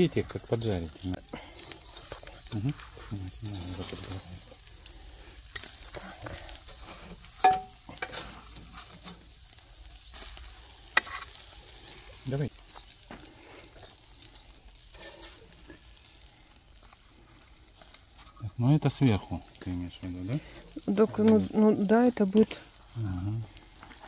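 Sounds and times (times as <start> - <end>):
meat sizzling on a grill: 0.0 - 24.0
tongs clicking on grate: 4.8 - 5.8, 7.4 - 8.2.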